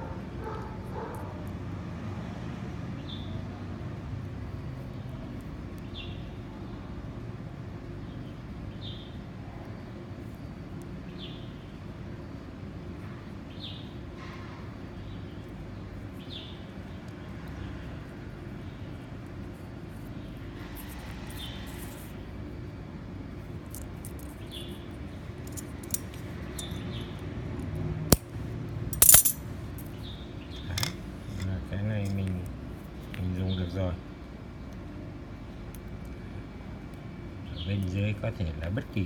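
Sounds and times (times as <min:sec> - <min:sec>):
low background hum: 0:00.0 - 0:39.0.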